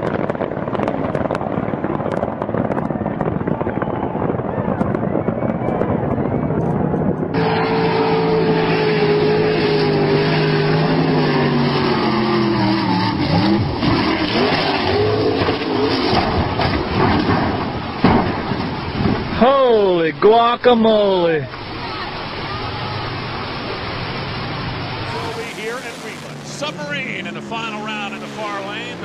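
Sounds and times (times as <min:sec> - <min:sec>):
boat engine running hard: 0:00.0 - 0:18.0, 0:21.7 - 0:29.0
boat crashing into rocks: 0:13.8 - 0:19.7.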